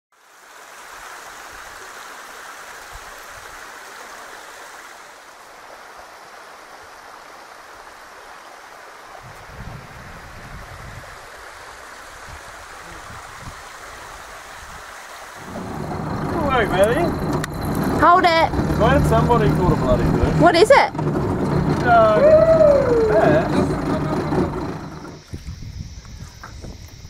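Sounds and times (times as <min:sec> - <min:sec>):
waterfall rushing: 0:11.2 - 0:25.2
low uneven rumbles: 0:15.4 - 0:25.2.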